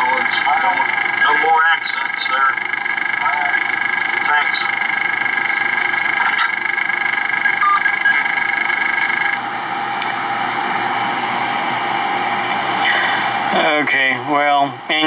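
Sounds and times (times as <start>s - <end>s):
buzzy tone: 0.0s - 11.1s
vehicle engine idling: 0.0s - 15.0s.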